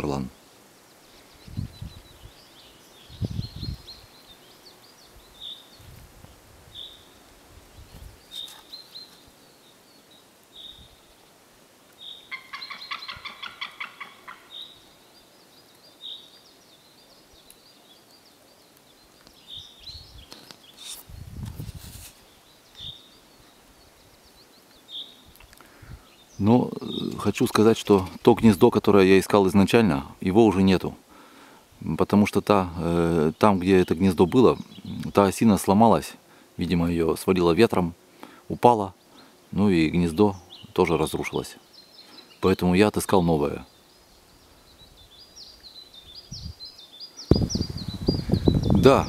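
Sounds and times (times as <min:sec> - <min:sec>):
eagle yelping alarm call: 0:12.2 - 0:14.8.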